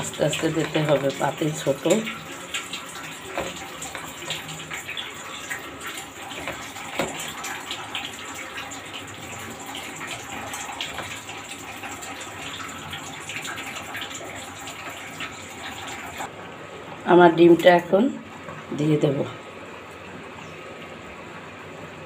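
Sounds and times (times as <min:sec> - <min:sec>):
broth boiling with pops: 0:00.0 - 0:16.4.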